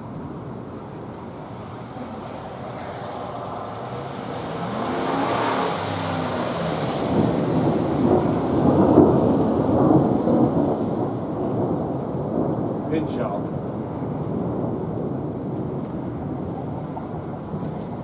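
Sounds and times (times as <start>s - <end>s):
thunder rolling: 0.0s - 18.0s
car passing: 1.2s - 13.8s.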